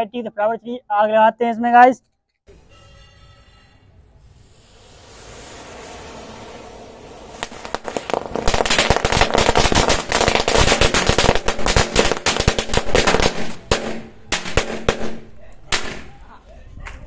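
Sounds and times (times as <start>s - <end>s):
firecrackers crackling: 4.2s - 16.4s.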